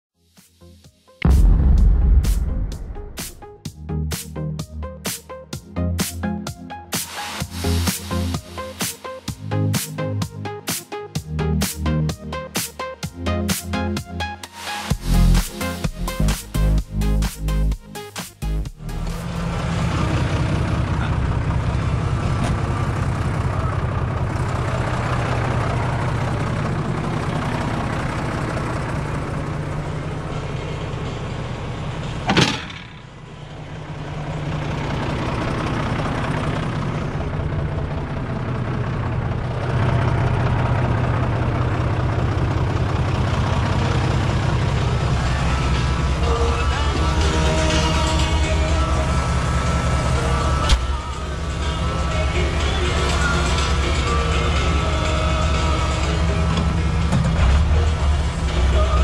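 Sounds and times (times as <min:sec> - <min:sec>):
sharp bang: 0:01.2 - 0:03.6
tractor diesel engine running: 0:05.6 - 0:59.0.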